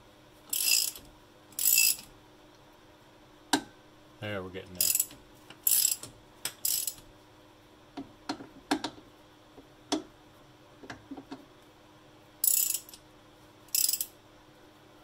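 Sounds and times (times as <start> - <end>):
ratchet clicking: 0.5 - 2.1, 4.8 - 7.0, 12.4 - 13.0, 13.7 - 14.1.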